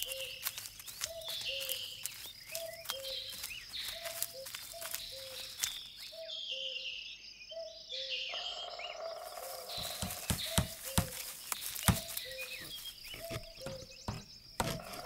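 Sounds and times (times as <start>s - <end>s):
birds chirping and calling: 0.0s - 15.0s.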